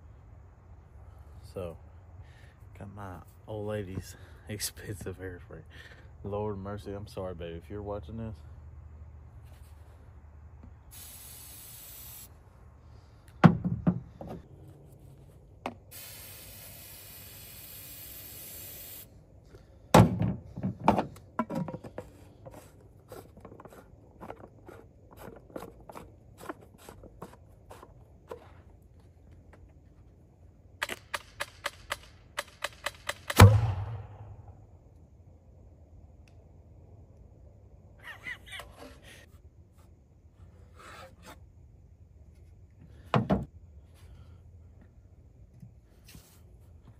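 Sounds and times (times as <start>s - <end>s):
aerosol hairspray hissing: 10.9s - 12.3s, 15.9s - 19.1s
potato gun boom: 33.2s - 34.4s.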